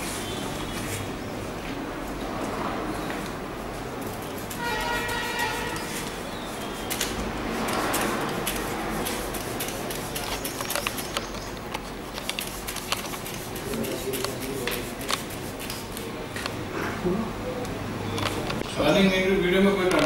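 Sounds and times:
cloth wiping car paint: 3.3 - 16.1.

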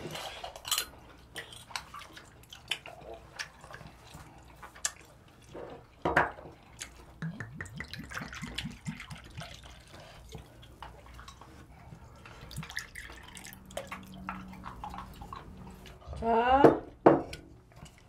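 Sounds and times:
liquid pouring into glasses: 12.5 - 15.4.

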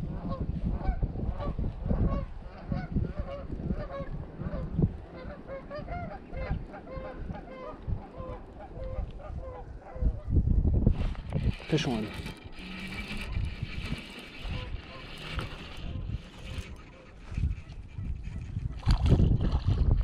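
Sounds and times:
wind rumbling on microphone: 0.0 - 20.0
geese honking: 2.2 - 10.0.

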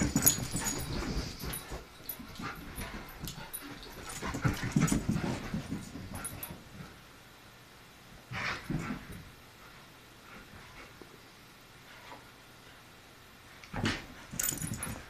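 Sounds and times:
paws thumping on carpet: 0.0 - 6.8
dogs scuffling: 0.0 - 7.0.

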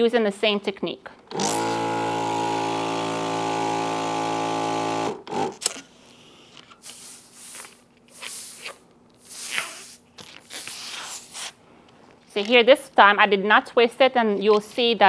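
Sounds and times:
balloon inflator motor hum: 1.3 - 11.3
balloon rubbing and squeaking: 6.9 - 11.6.

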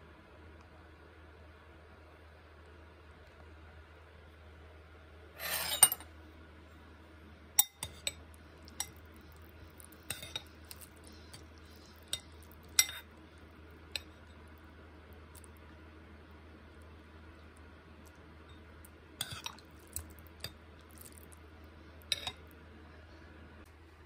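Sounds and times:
spoon scraping a bowl: 5.4 - 6.1, 10.1 - 13.1.

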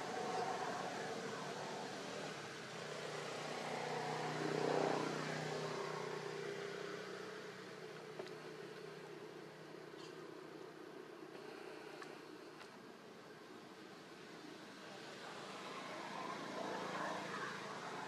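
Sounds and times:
motor vehicle passing by: 0.0 - 9.6, 14.8 - 18.0.

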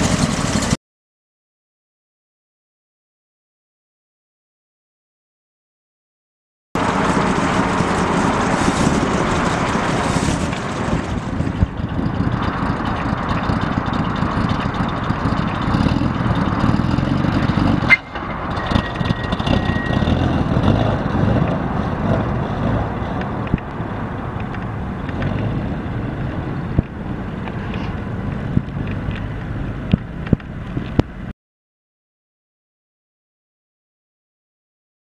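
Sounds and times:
car engine driving away: 6.8 - 31.3.

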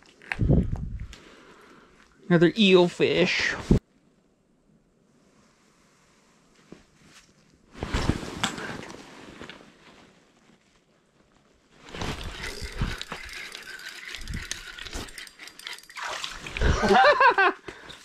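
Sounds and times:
rustling and knocking of gear: 6.6 - 16.7.

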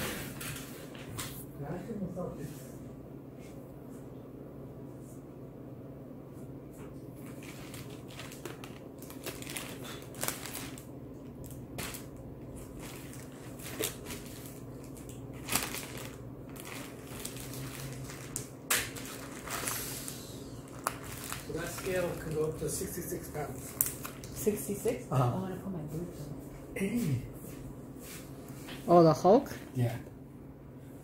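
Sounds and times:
low steady hum: 0.0 - 31.0
rustling of objects being handled: 6.7 - 25.0.

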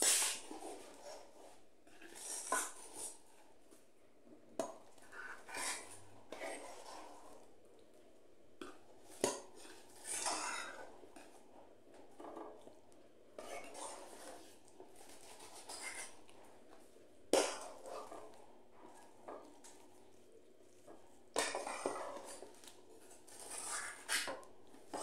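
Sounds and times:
metal spoon scraping a bowl: 15.2 - 16.3, 23.3 - 25.0.

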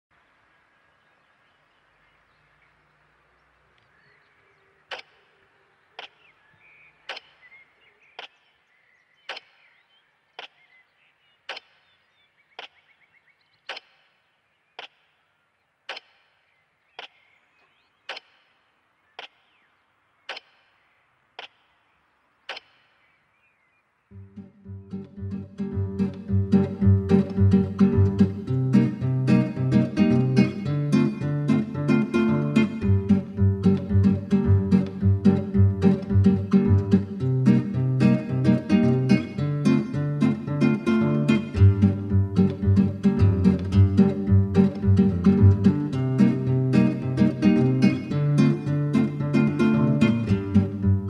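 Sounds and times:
faint background hiss: 0.1 - 13.6
sharp evenly spaced ticks: 4.9 - 6.3, 7.0 - 8.6, 9.2 - 9.7, 10.4 - 10.7, 11.4 - 12.0, 12.6 - 13.0, 13.7 - 15.3, 15.9 - 17.3, 18.0 - 19.6, 20.2 - 23.2, 24.9 - 51.0
acoustic guitar: 24.2 - 51.0.

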